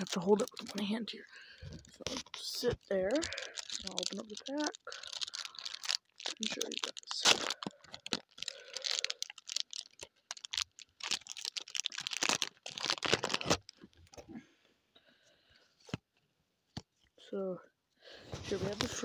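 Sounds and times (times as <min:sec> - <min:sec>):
wrapper tearing and crinkling: 0:00.0 - 0:01.1, 0:01.8 - 0:14.2.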